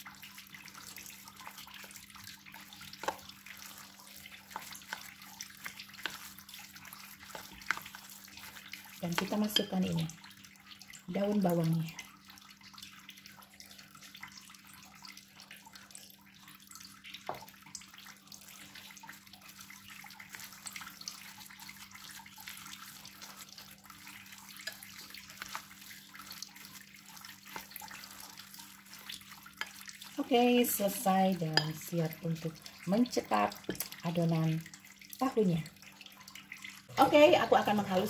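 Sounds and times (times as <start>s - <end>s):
spatula scraping wet batter: 0.6s - 9.9s, 18.5s - 32.0s.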